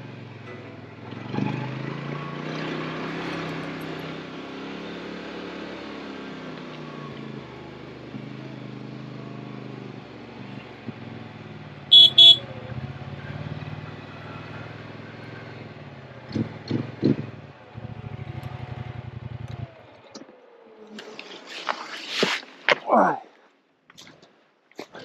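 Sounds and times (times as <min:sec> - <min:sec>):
engine running at low speed: 0:00.0 - 0:21.0
short horn beeps: 0:11.9 - 0:12.4.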